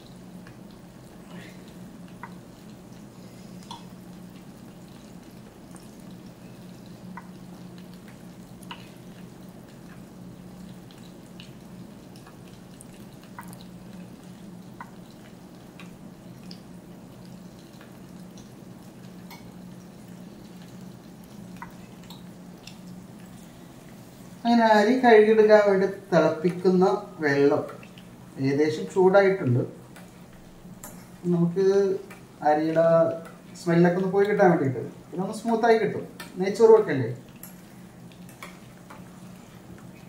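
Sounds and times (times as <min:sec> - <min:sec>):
steady low hum: 0:00.0 - 0:40.0
faint ticks and clicks: 0:01.7 - 0:03.0, 0:03.6 - 0:16.6.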